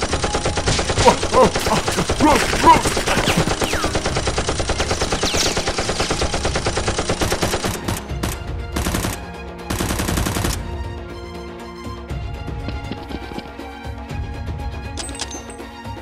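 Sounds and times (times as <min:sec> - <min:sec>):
rapid automatic gunfire: 0:00.0 - 0:10.6.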